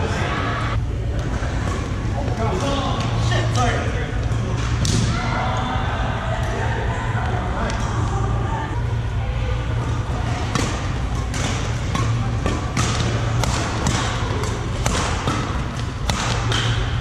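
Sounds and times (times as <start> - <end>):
steady low hum: 0.0 - 17.0
rackets hitting shuttlecock: 10.3 - 17.0.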